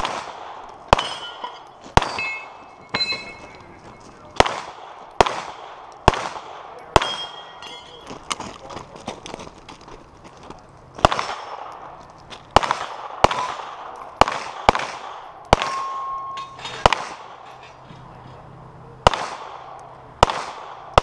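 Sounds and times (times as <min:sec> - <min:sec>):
pistol shots echoing: 0:00.0 - 0:03.6, 0:04.3 - 0:08.1, 0:11.0 - 0:17.4, 0:19.0 - 0:21.0
ringing tone: 0:01.0 - 0:04.3, 0:15.8 - 0:16.6.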